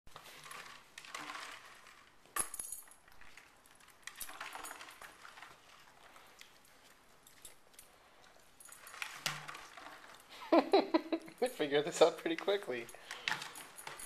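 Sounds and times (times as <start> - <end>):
plastic bottles crinkling and clattering: 0.1 - 10.6, 11.3 - 14.0.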